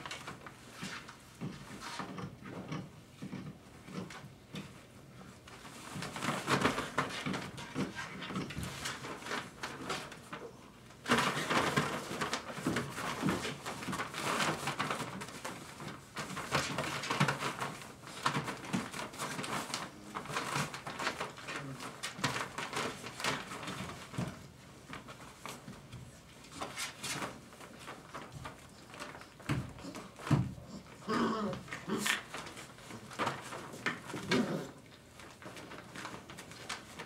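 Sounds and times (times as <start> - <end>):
puppy paws scuffling on wood: 0.0 - 37.0
puppy vocalizations: 29.8 - 32.4.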